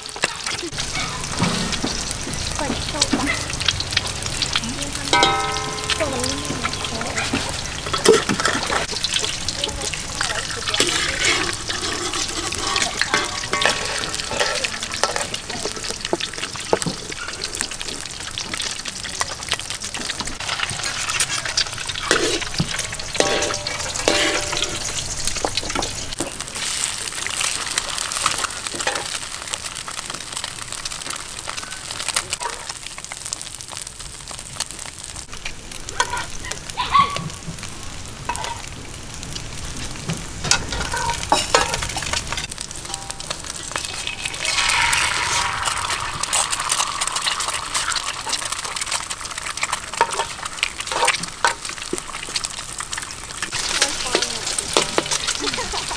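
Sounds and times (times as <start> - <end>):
eggs sizzling in oil: 0.0 - 55.9
metal utensils scraping pan: 0.2 - 18.6, 20.1 - 26.8, 28.2 - 29.3, 36.0 - 36.4, 38.3 - 38.7, 40.4 - 52.9, 53.5 - 55.9.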